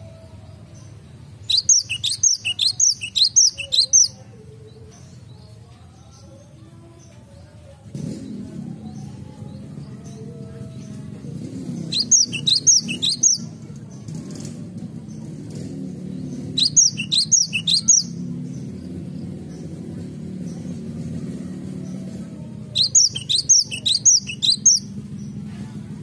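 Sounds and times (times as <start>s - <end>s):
bird singing high repeated notes: 1.4s - 4.1s, 11.9s - 13.5s, 16.4s - 18.2s, 22.8s - 24.9s.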